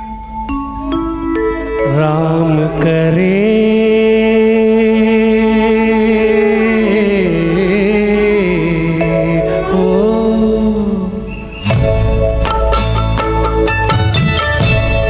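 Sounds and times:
man singing into microphone: 1.7 - 11.4.

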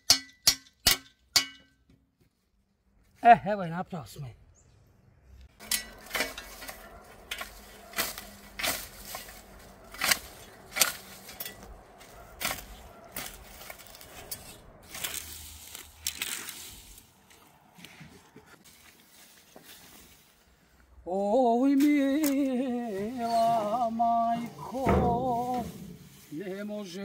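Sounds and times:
rake scraping through grass: 5.6 - 20.6, 22.6 - 27.0.

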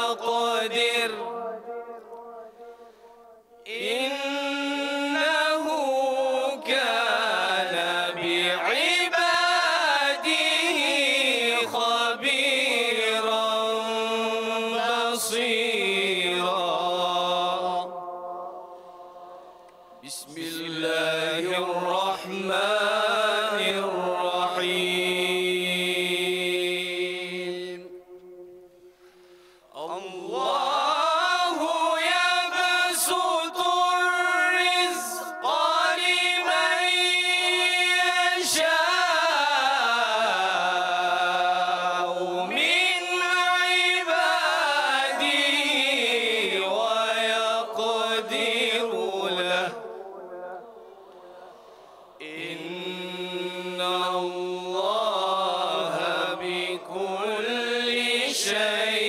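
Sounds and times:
group of voices chanting in unison: 29.9 - 59.0.

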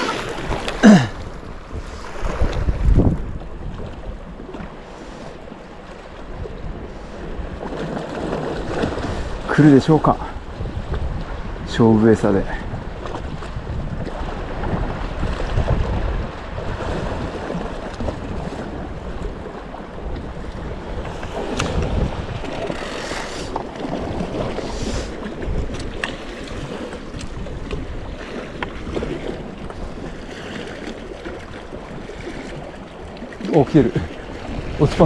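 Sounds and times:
wind buffeting microphone: 0.0 - 4.8, 5.5 - 35.0
waves washing against rocks: 0.0 - 35.0.

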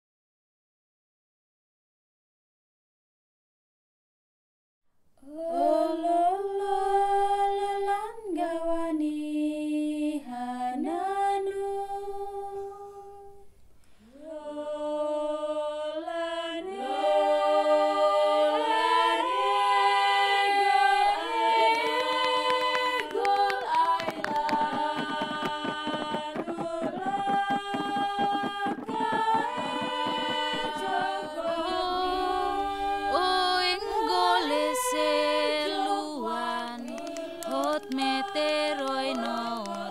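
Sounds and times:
women singing unaccompanied: 5.2 - 13.5, 14.1 - 39.9
fast dense clicking rhythm: 21.8 - 32.6.

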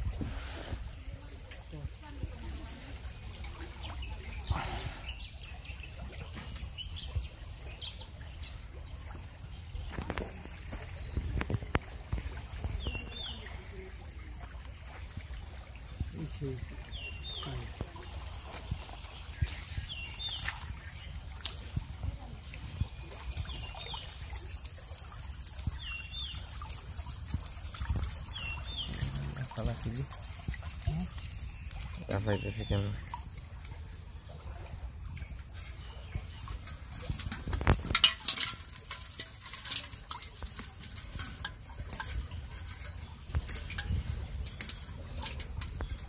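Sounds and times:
water sloshing: 0.0 - 46.0
faint bird chirps: 0.3 - 11.7
knocks and splashes: 1.4 - 46.0.

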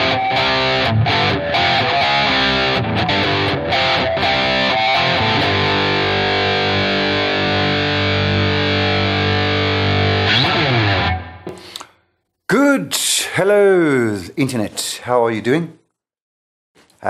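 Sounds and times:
distorted electric guitar: 0.0 - 11.8.

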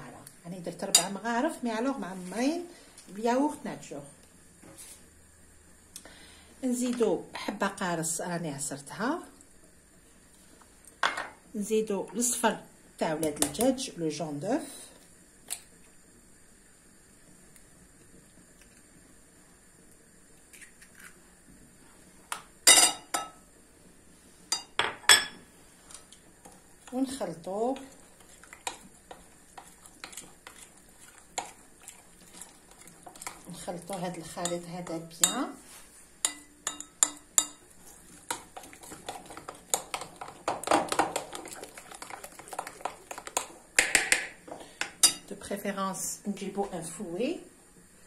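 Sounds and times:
wet scraping of mixture: 27.7 - 36.0, 37.8 - 43.6
spoon clinking against glass bowl: 36.3 - 37.6.

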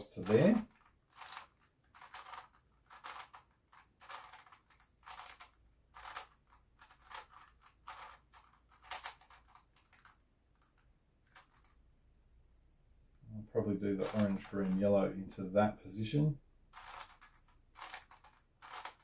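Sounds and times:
plastic puzzle cube clicking: 0.2 - 11.8, 14.0 - 14.5, 16.7 - 19.0.

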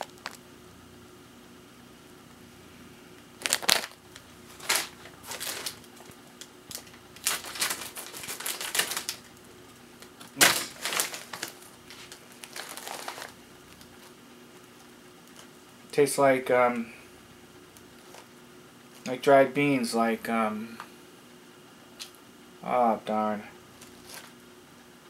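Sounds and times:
plastic snack bag crackling: 0.0 - 0.4, 3.4 - 15.6.

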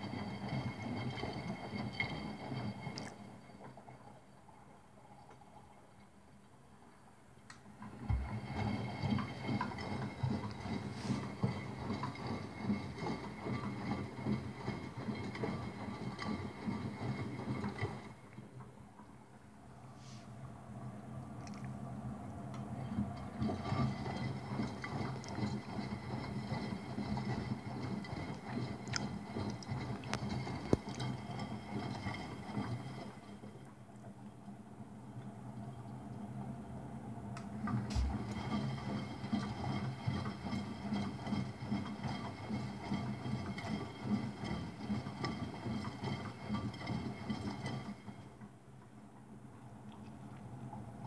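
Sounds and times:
washing machine motor humming: 7.7 - 33.3, 37.4 - 47.3
small irregular knocks: 8.0 - 10.8
water sloshing in drum: 8.0 - 12.2, 37.9 - 38.6
low motor hum: 8.0 - 12.3, 37.8 - 38.9.

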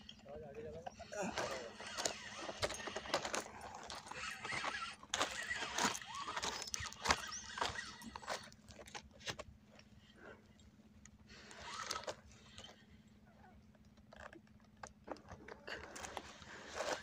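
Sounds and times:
short squeaky glides: 0.9 - 8.5, 11.4 - 12.9
fishing reel clicks and rattles: 1.3 - 9.0.

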